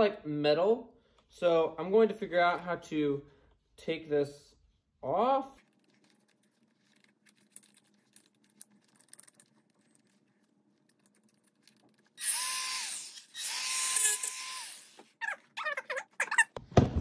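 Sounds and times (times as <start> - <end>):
rotary tool motor whine: 12.2 - 15.2.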